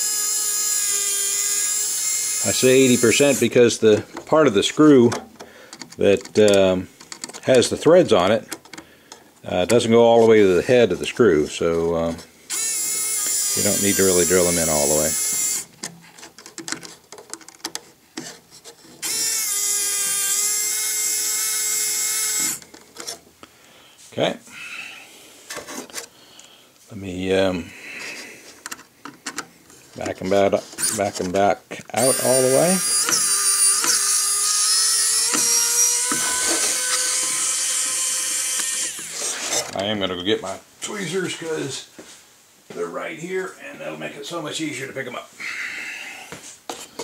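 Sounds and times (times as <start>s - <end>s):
power drill whining: 0.0s - 6.0s, 12.5s - 15.7s, 19.0s - 23.1s, 30.8s - 31.2s, 32.0s - 39.7s.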